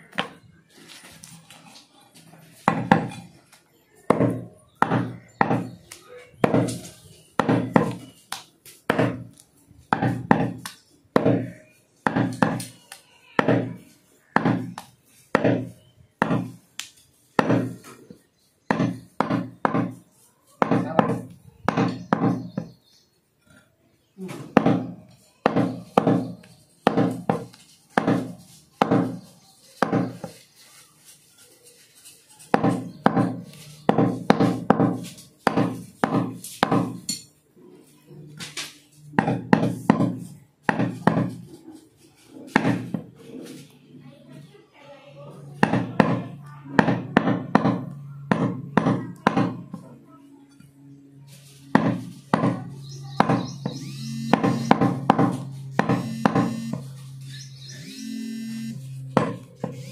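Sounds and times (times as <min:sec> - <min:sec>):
cleaver chopping meat and bone: 0:04.1 - 0:05.8, 0:07.4 - 0:08.1, 0:08.9 - 0:09.3, 0:09.9 - 0:12.8, 0:13.4 - 0:16.6, 0:17.4 - 0:17.8, 0:18.7 - 0:20.0, 0:20.6 - 0:22.8, 0:24.5 - 0:30.3, 0:32.5 - 0:37.1, 0:39.2 - 0:41.4, 0:42.5 - 0:43.0, 0:45.6 - 0:49.8, 0:51.7 - 0:56.8.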